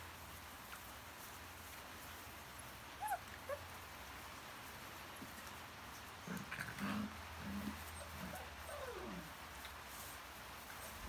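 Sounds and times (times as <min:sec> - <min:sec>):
puppies yipping: 0:03.0 - 0:03.6, 0:07.7 - 0:09.3
puppy whining: 0:03.0 - 0:03.6, 0:07.5 - 0:09.3
puppies growling: 0:06.2 - 0:09.4.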